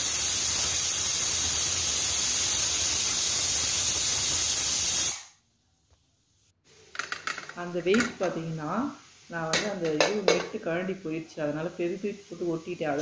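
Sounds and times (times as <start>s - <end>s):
pressure cooker hissing steam: 0.0s - 5.4s, 6.9s - 13.0s.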